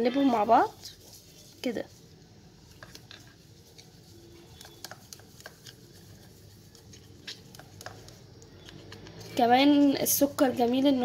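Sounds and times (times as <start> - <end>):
plastic spoon scraping a bowl: 2.7 - 9.9.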